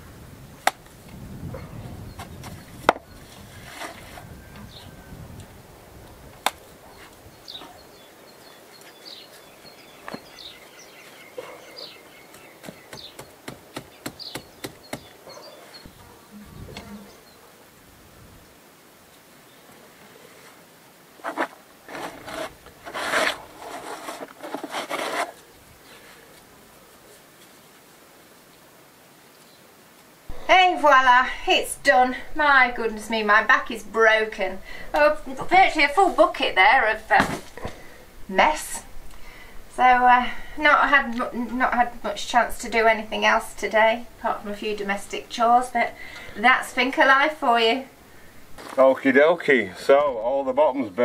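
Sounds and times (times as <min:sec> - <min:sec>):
small birds chirping: 0:01.3 - 0:17.6, 0:28.4 - 0:49.1
trowel scraping mortar: 0:21.2 - 0:25.4.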